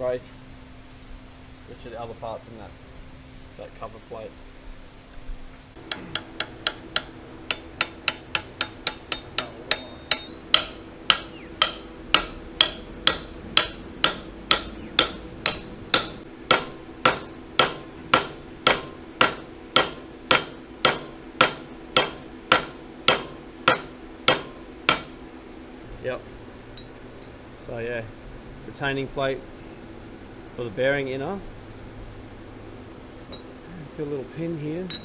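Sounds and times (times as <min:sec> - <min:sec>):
hammer striking steel: 0:05.8 - 0:25.2.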